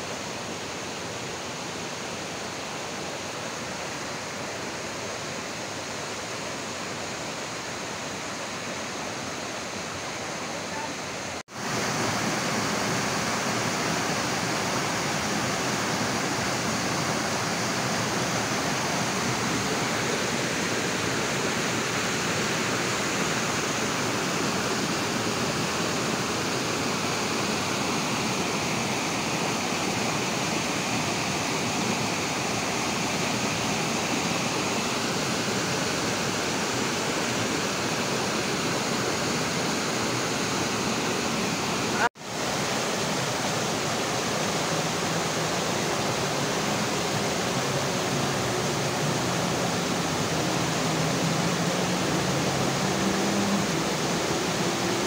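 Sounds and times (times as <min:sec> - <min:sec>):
waterfall rushing over rocks: 0:00.0 - 0:55.0.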